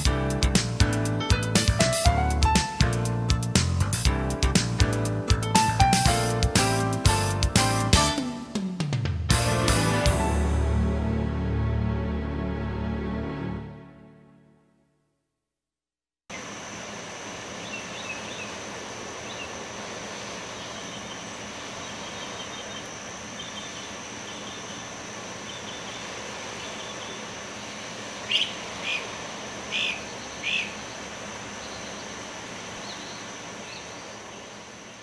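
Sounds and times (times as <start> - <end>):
steady hiss: 16.3 - 35.0
birds chirping: 17.4 - 35.0
loud short bird calls: 28.2 - 31.0.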